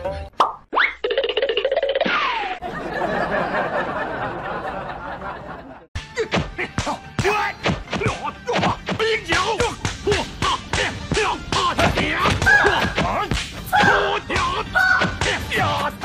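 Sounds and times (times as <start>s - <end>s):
background music with steady beat: 6.0s - 16.0s.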